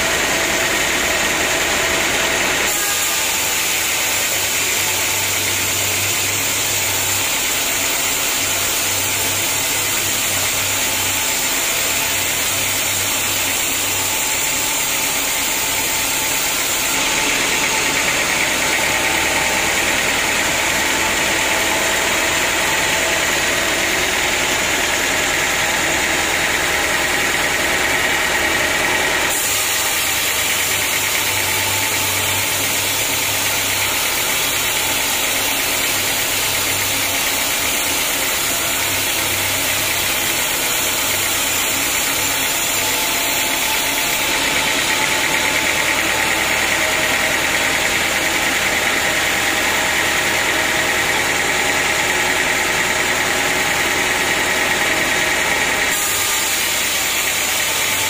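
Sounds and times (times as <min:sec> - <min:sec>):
band saw cutting wood: 0:00.0 - 0:58.0.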